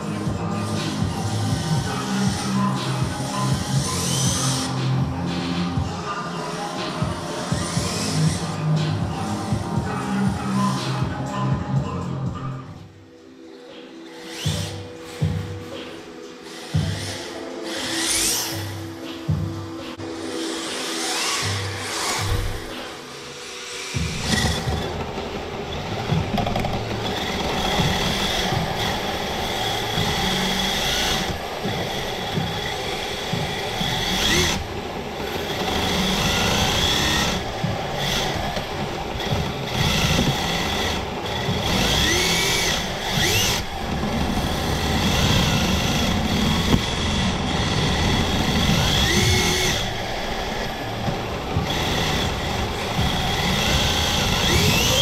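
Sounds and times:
electric motor whining: 0:14.1 - 0:19.0, 0:20.1 - 0:55.0.

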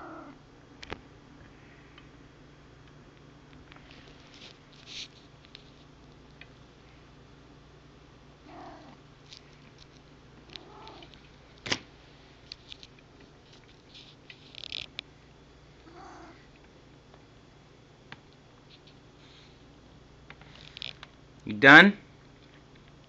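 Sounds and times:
cat soft calls: 0:08.5 - 0:09.0, 0:10.6 - 0:11.1.

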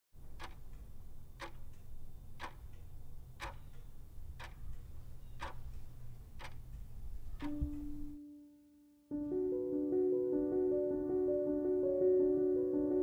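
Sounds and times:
clock ticking: 0:00.2 - 0:08.2.

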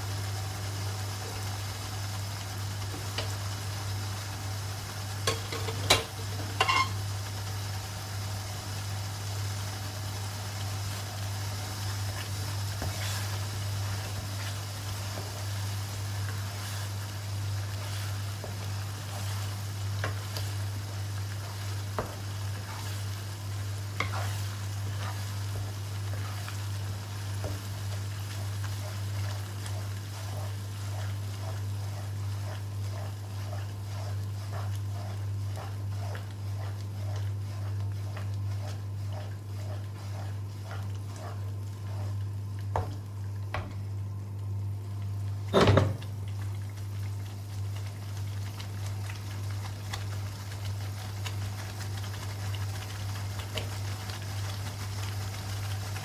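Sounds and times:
paste sizzling in oil: 0:00.0 - 0:43.4, 0:45.1 - 0:56.0
wooden spatula scraping wok: 0:05.2 - 0:07.0, 0:10.2 - 0:43.1
steady low hum: 0:09.5 - 0:48.6.

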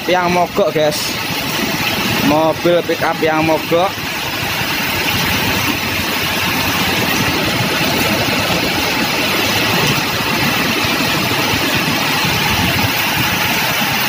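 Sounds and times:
car and truck engines running: 0:00.0 - 0:14.0
water washing from tyres: 0:00.0 - 0:14.0.

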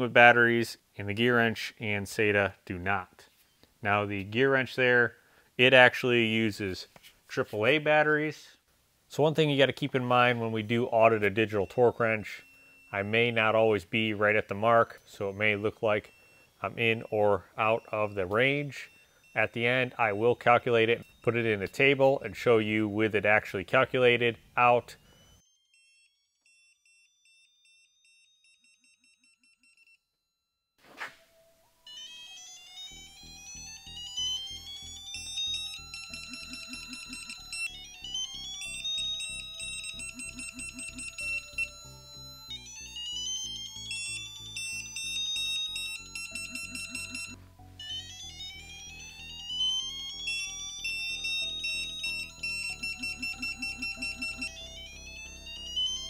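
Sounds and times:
thin steady tones: 0:09.5 - 0:24.2, 0:32.6 - 0:47.4, 0:49.3 - 0:56.0
rising electronic tones: 0:32.7 - 0:56.0
rapid electronic beeping: 0:34.2 - 0:37.8, 0:38.5 - 0:42.5, 0:45.2 - 0:47.4, 0:51.3 - 0:56.0.

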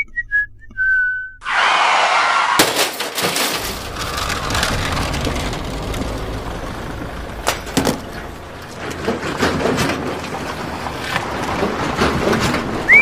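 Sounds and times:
vehicle cruising at highway speed: 0:03.6 - 0:13.0.

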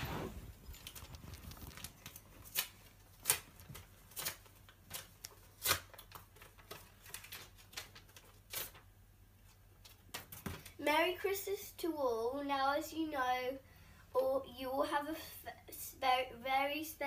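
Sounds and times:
paper rustling and crackling: 0:00.0 - 0:10.8.

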